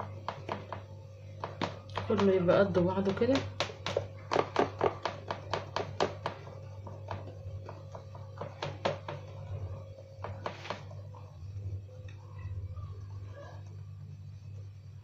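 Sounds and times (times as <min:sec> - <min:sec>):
hand patting dough on metal tray: 0:00.0 - 0:11.4
steady low hum: 0:00.0 - 0:15.0.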